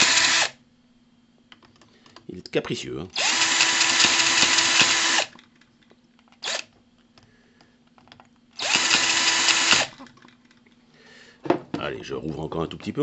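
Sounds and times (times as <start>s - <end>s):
cordless drill whining: 0.0s - 0.5s, 3.2s - 5.4s, 6.4s - 6.7s, 8.6s - 10.0s.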